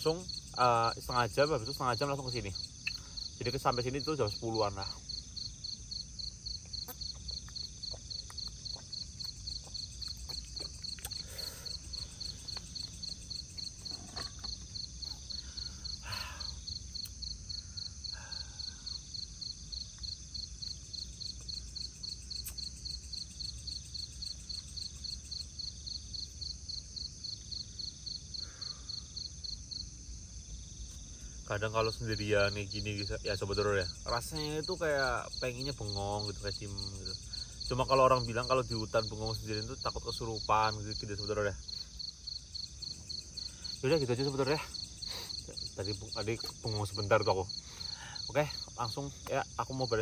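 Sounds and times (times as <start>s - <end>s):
high insect trill: 0.0s - 50.0s
insects chirping: 0.0s - 50.0s.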